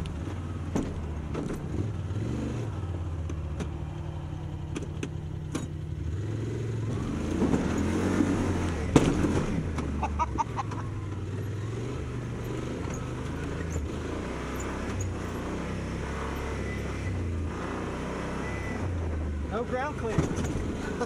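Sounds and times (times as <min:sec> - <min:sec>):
engine running at low revs: 0:00.0 - 0:21.0.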